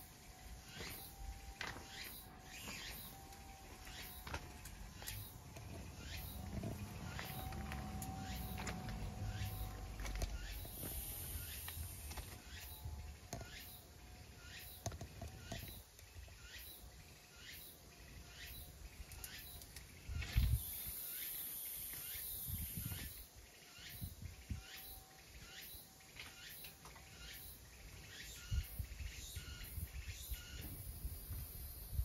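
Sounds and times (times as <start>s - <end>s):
small bird chirping: 1.8s - 30.9s
low bumps: 4.2s - 12.4s.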